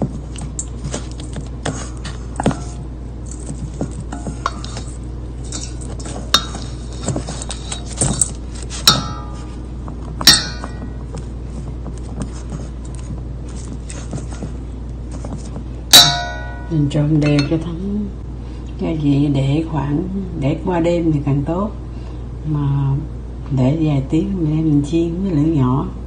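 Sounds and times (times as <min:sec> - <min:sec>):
chopsticks scraping steel bowl: 0:00.6 - 0:09.6.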